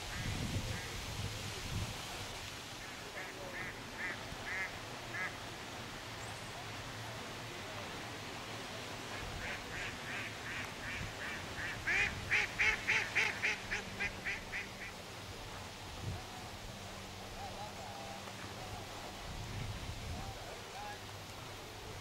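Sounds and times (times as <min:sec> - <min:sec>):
waterfowl calling: 0:02.8 - 0:05.4, 0:09.4 - 0:15.0.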